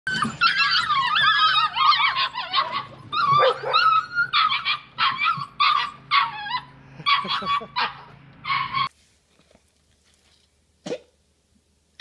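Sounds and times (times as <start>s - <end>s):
puppies barking and yipping: 0.1s - 8.9s.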